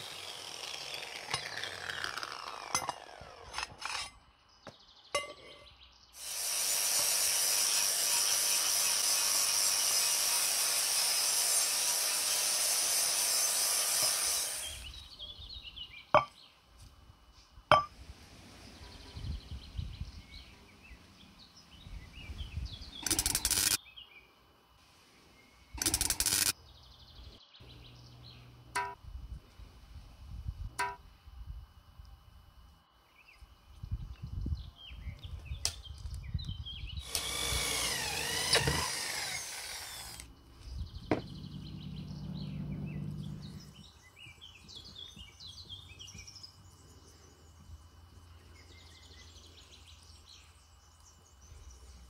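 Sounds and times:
angle grinder sanding metal: 0.0s - 4.1s, 6.2s - 14.9s, 23.0s - 23.8s, 25.8s - 26.5s, 37.0s - 40.2s.

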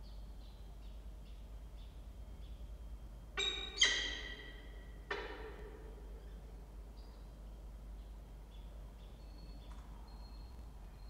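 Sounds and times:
bird chick peeping: 3.4s - 5.4s.

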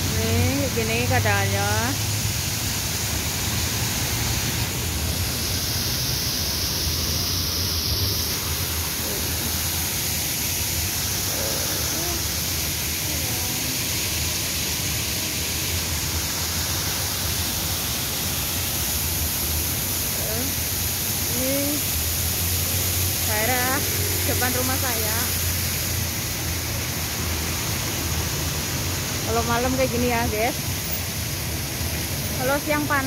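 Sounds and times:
fountain water splashing: 0.0s - 33.0s.

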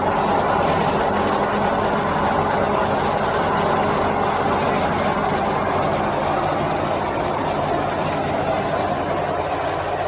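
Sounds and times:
low machine hum: 0.0s - 10.0s.

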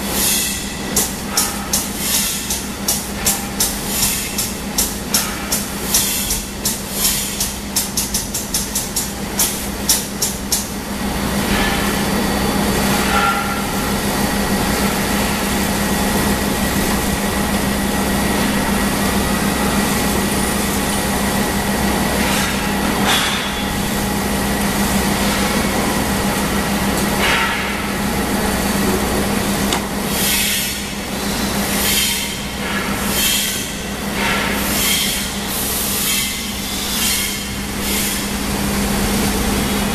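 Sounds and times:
blower humming with rushing air: 0.0s - 39.9s.

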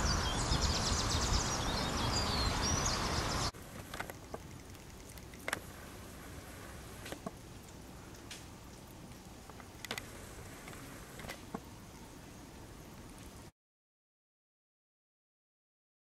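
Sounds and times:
birds chirping: 0.0s - 13.0s
faint ticks: 3.7s - 11.7s.

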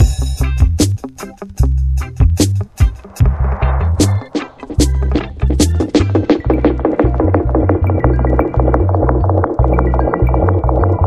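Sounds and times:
dub reggae music: 0.0s - 11.0s
wash of noise: 2.8s - 5.6s.

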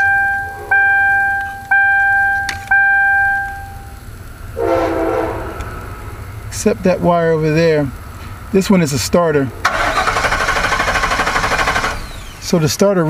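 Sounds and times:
car warning chime dinging: 0.0s - 4.3s
short low hum: 0.0s - 6.6s.

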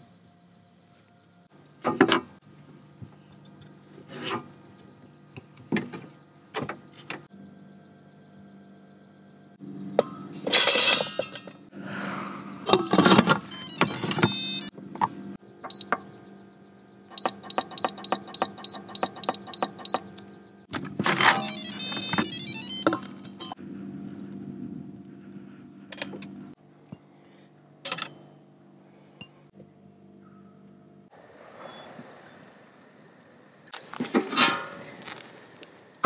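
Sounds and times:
control panel beeps: 13.5s - 14.7s, 15.7s - 15.9s, 17.2s - 20.0s, 21.3s - 22.9s.

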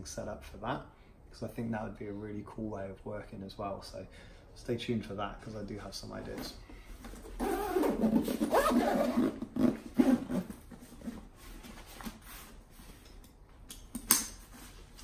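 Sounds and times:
fabric backpack rustling and scraping: 7.2s - 13.0s.

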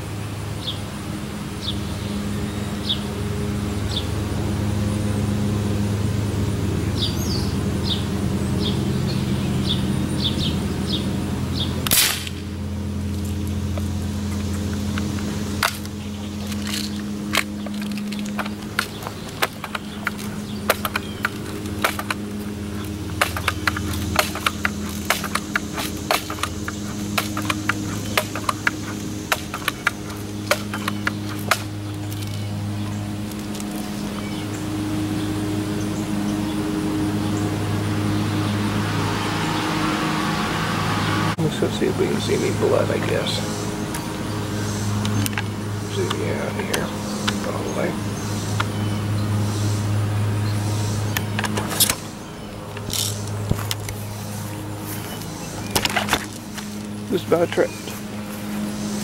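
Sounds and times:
steady low hum: 0.0s - 59.0s
sharp gunshot: 11.9s - 12.5s
sharp clicks: 13.1s - 32.5s.

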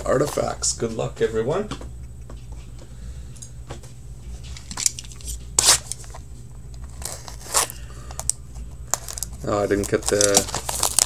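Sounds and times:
low electrical hum: 0.0s - 11.0s
cardboard box rustling: 9.0s - 11.0s.

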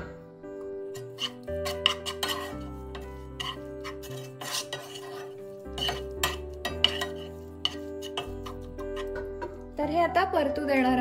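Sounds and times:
wooden spatula scraping frying pan: 0.9s - 9.7s
spatula knocking against pan: 5.8s - 9.7s.

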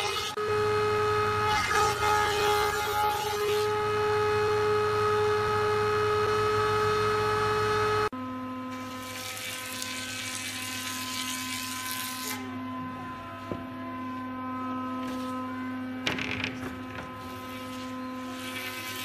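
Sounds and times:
moulding machine motor whine: 0.0s - 8.7s, 11.4s - 19.0s.

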